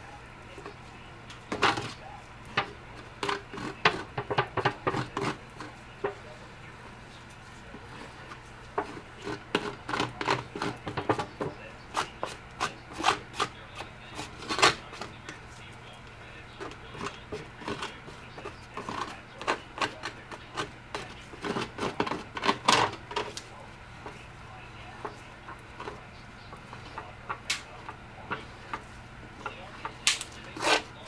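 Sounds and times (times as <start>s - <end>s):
stick scraping aluminium tin: 2.6s - 5.7s, 8.8s - 15.1s, 16.6s - 23.4s, 28.3s - 31.0s.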